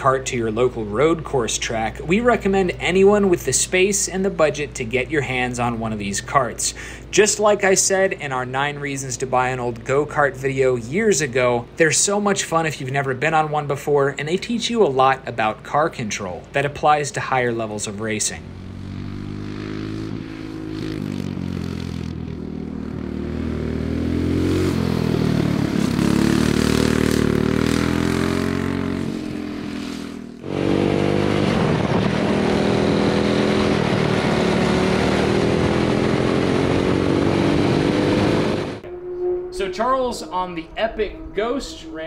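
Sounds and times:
racing kart engine revving: 18.4s - 38.9s.

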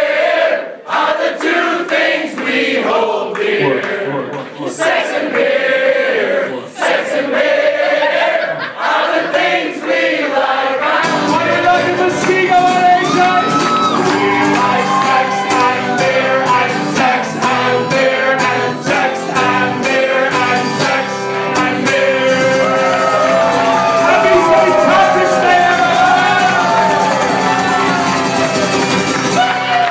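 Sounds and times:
crowd singing along: 0.0s - 28.4s
crowd clapping: 1.4s - 5.5s, 11.7s - 16.2s, 22.8s - 29.9s
man singing: 3.4s - 5.0s, 11.1s - 27.0s
acoustic guitar strumming: 11.0s - 29.6s.

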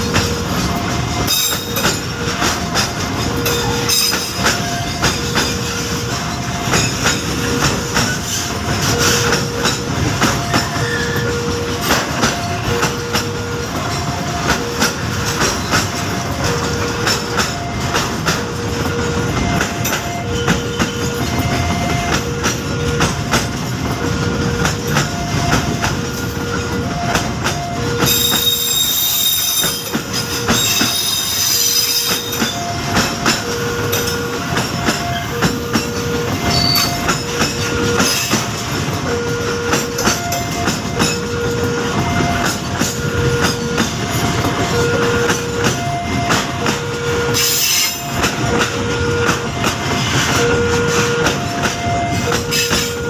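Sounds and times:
high wheel squeal: 10.5s - 11.4s, 28.0s - 32.6s, 36.4s - 37.2s.

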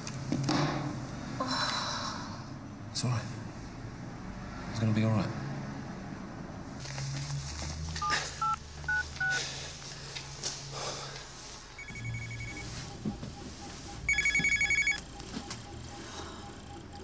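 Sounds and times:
electronic telephone ringing: 8.0s - 9.4s, 11.8s - 13.0s, 14.0s - 17.0s
phone keypad beeping: 8.0s - 9.4s, 11.8s - 17.0s.

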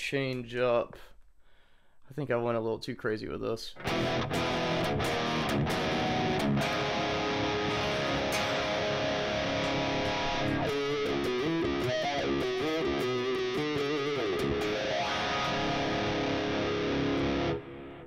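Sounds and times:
overdriven electric guitar: 3.8s - 18.0s.

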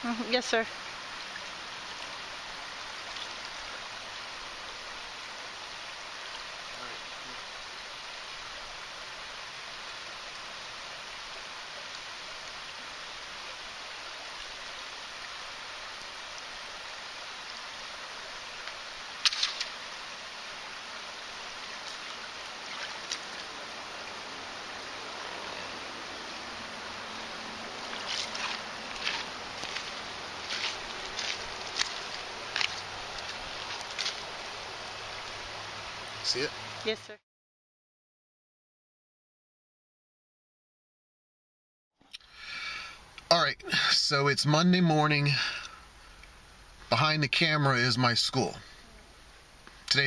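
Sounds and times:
creek water flowing over stones: 0.0s - 37.2s, 42.1s - 50.0s
footsteps on gravel: 27.8s - 34.3s.

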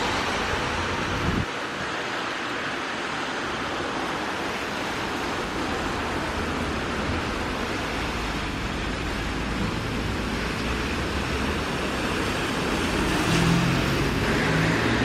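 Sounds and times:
steady rain: 0.0s - 15.0s
traffic rumble: 0.0s - 15.0s
tyres swishing on wet road: 0.0s - 15.0s.

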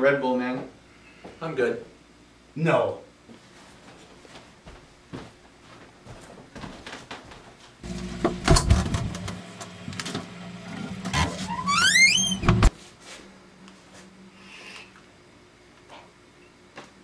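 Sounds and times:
refrigerator hum: 7.8s - 12.7s
refrigerator door opening: 8.2s - 9.4s, 10.0s - 12.7s
refrigerator door knocked shut: 8.3s - 9.1s
rising squeak: 11.1s - 12.7s.

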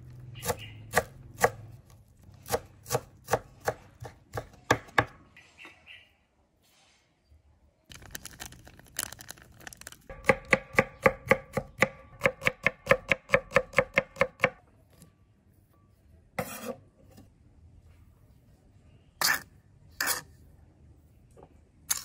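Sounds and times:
knife chopping on cutting board: 0.4s - 1.6s, 2.4s - 5.2s
knife scrape: 16.4s - 16.9s, 19.2s - 20.4s.

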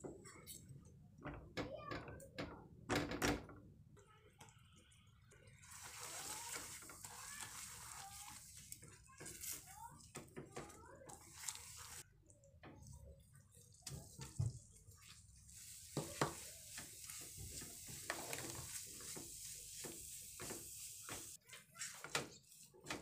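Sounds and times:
spatula scraping frying pan: 5.7s - 9.7s, 15.5s - 21.9s.

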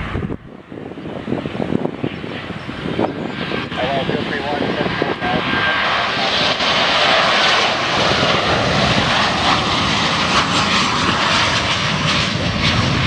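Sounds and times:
jet airliner passing overhead: 0.0s - 13.0s.

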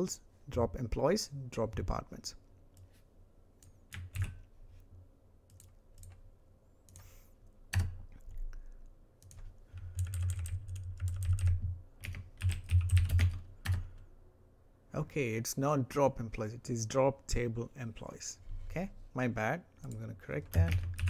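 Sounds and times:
typing on a keyboard: 9.2s - 13.8s, 19.9s - 21.0s.

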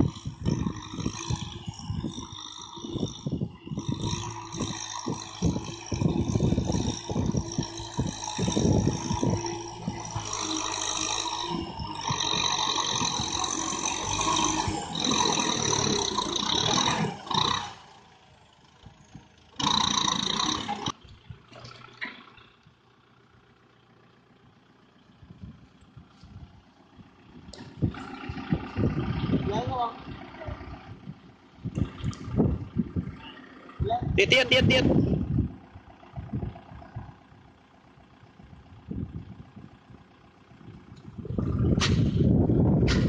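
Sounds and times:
tractor diesel engine under load: 0.0s - 43.0s
disc plough clattering in soil: 18.6s - 22.8s, 40.8s - 43.0s.

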